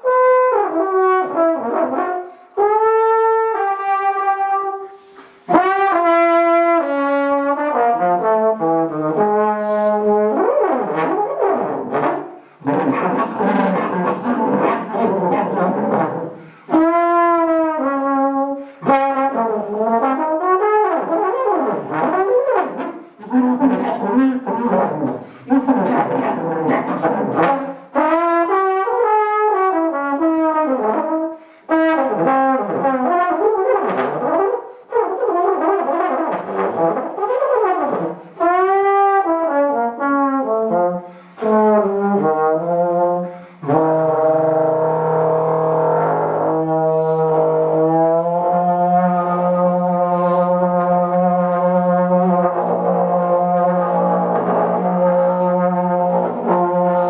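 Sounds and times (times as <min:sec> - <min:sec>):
trombone improvising: 0:00.0 - 0:57.0.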